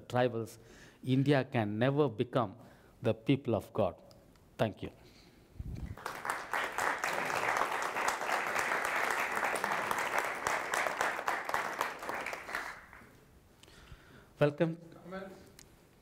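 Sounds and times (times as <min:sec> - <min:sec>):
audience applauding: 0:05.9 - 0:13.2.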